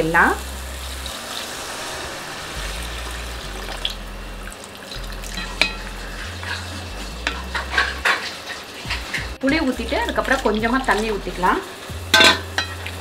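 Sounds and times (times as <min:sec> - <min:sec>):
frying hiss: 0:00.0 - 0:13.0
liquid poured into hot pan: 0:00.7 - 0:06.9
wooden spoon stirring: 0:05.4 - 0:09.3.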